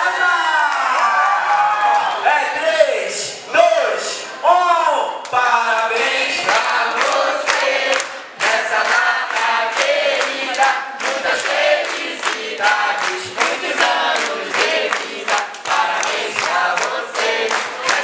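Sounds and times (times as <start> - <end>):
people clapping in time: 5.2 - 18.0
crowd singing a birthday song: 5.3 - 18.0.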